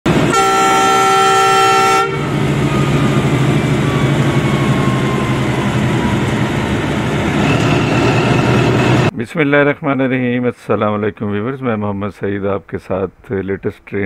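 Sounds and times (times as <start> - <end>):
locomotive horn chord: 0.1 - 7.6
diesel engine idling: 0.1 - 9.1.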